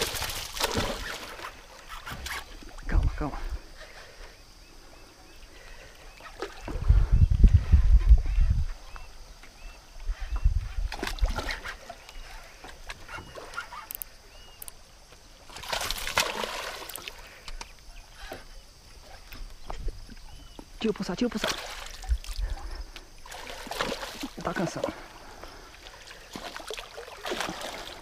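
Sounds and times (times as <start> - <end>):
water splash: 0.0 - 1.6, 15.5 - 17.2, 23.2 - 24.7, 26.3 - 28.0
wind buffeting microphone: 6.6 - 9.3, 10.0 - 11.4
bird chirping: 12.0 - 14.8, 17.4 - 20.7.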